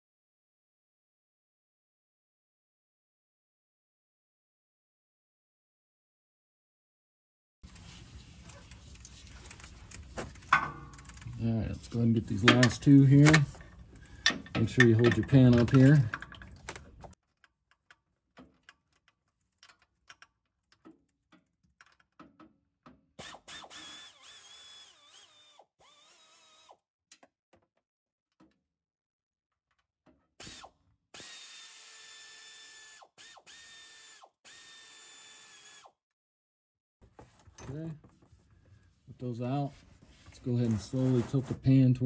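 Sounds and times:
power tool motor whining: 23.2 - 26.8, 30.4 - 35.9.

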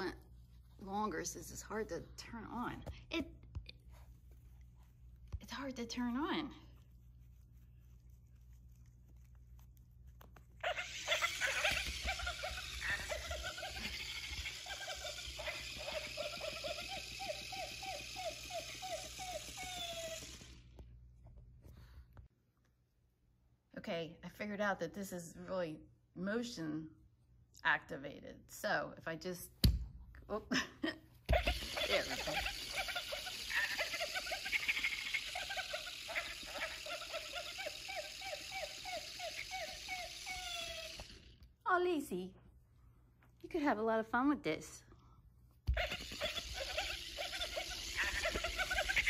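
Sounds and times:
toy motor rattling and buzzing: 10.6 - 20.8, 31.3 - 41.4, 45.7 - 49.0.

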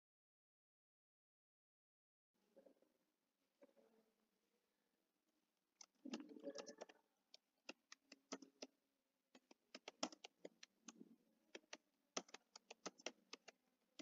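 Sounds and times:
computer keyboard typing: 5.8 - 7.0, 7.6 - 8.7, 9.3 - 14.0.

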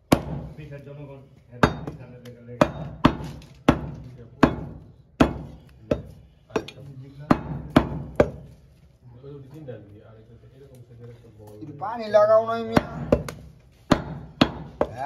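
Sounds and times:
cleaver chopping on wooden block: 0.1 - 0.5, 1.6 - 8.5, 12.7 - 15.0.

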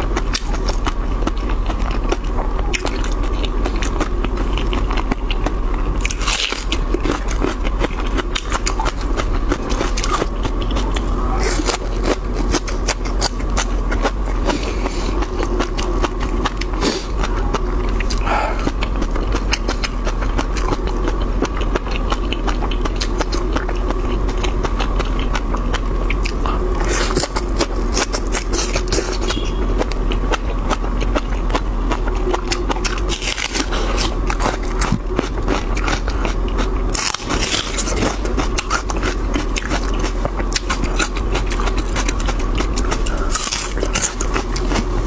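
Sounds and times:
close chewing with wet clicks: 0.0 - 45.0
low hum: 0.0 - 45.0.

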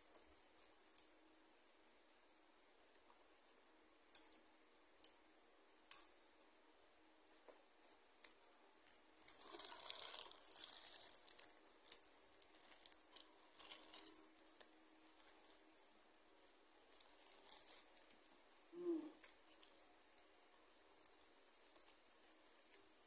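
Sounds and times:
paper wrapper crinkling and tearing: 9.2 - 14.2.

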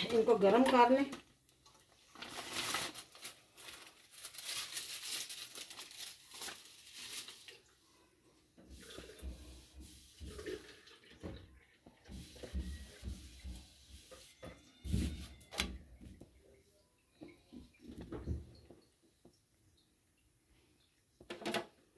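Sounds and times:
wrap crackling on a hot pan: 1.9 - 7.6.

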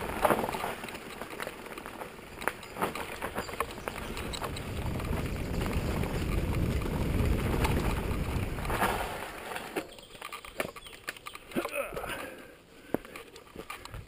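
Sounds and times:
bike tyres rumbling on dirt: 0.0 - 12.5
wind buffeting microphone: 3.4 - 9.2.

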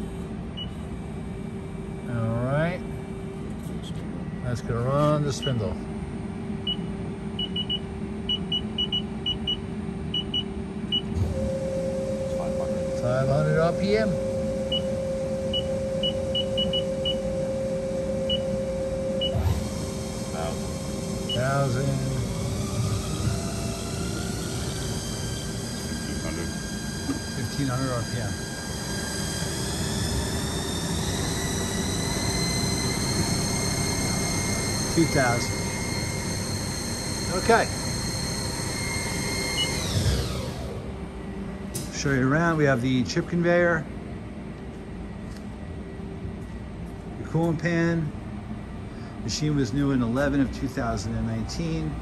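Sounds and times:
machine hum: 0.0 - 52.0
lathe spindle whine: 10.4 - 43.8, 49.0 - 52.0.

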